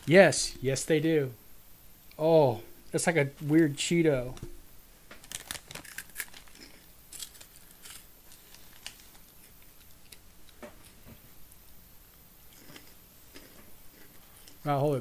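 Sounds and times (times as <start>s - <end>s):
plastic snack packet crackling: 5.2s - 9.6s
crunching snacks: 5.2s - 10.2s, 12.5s - 14.6s.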